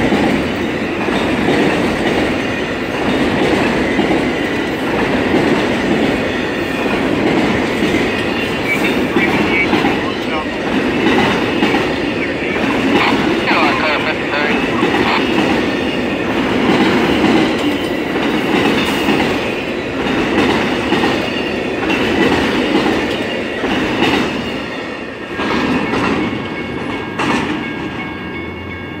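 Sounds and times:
train wheels clacking over rail joints: 16.3 - 24.4, 25.3 - 28.0.

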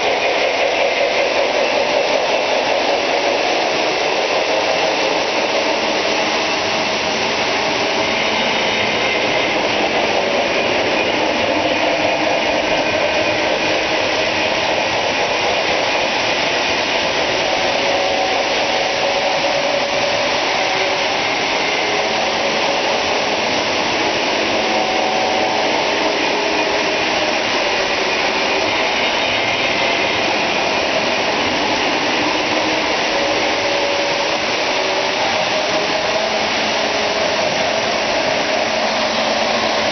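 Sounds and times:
model trains whirring on track: 0.0 - 39.9.

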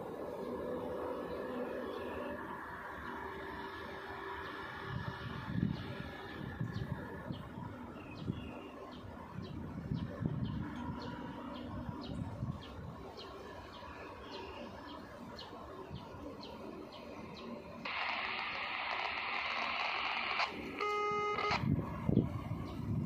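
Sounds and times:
radio hiss: 17.8 - 21.8
short beep: 20.8 - 21.6.

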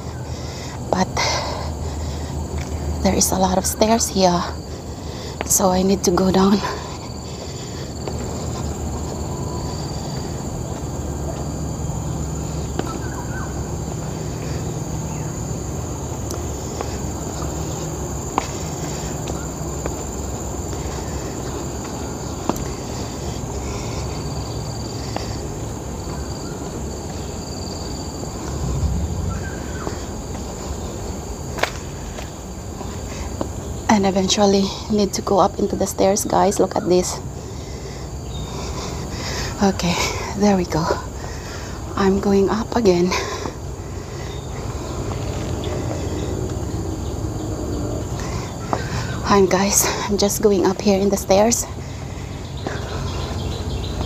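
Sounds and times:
high-pitched insect chorus: 0.0 - 54.0
low rumble: 27.4 - 31.5.

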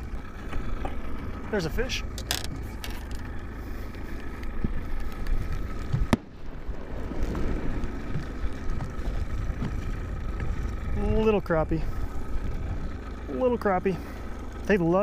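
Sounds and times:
outboard motor rumble: 0.0 - 15.0
water noise: 0.0 - 15.0
wind on microphone: 5.3 - 11.1.

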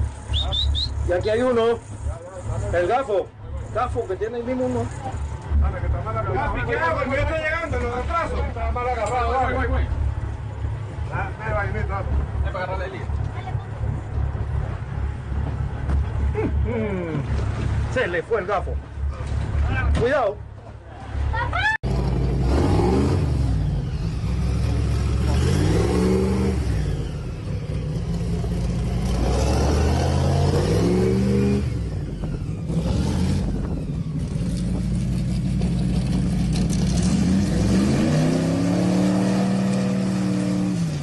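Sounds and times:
airboat engine revving: 21.8 - 41.0.

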